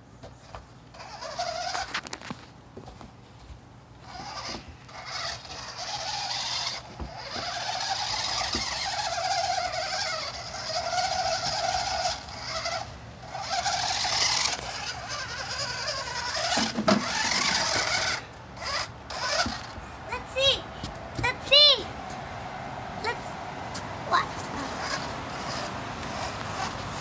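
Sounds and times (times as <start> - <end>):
toy car electric motors whining: 0.4 - 2.3, 4.0 - 20.6, 24.1 - 27.0.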